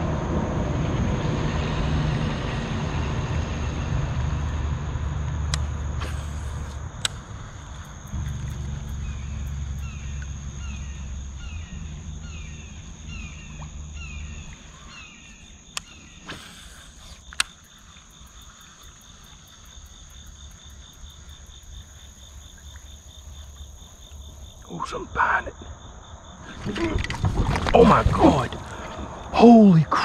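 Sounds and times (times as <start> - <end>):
crickets and insects chirping: 0.0 - 30.0
sharp clicks: 5.5 - 7.3, 15.7 - 16.0, 16.6 - 17.7.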